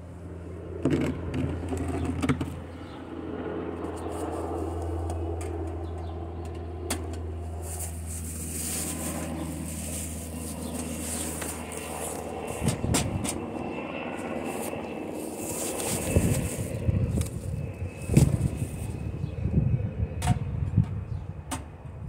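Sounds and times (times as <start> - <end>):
low machine hum: 0.0 - 22.0
cardboard and paper rustling: 7.6 - 12.7, 14.6 - 17.5.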